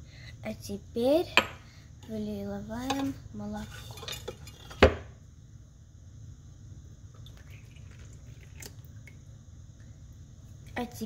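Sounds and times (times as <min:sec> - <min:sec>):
milk pouring into a bowl: 0:07.1 - 0:09.3.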